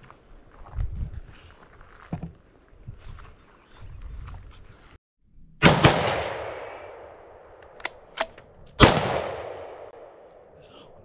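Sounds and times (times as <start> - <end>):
rifle shots with rolling echo: 5.6 - 10.3.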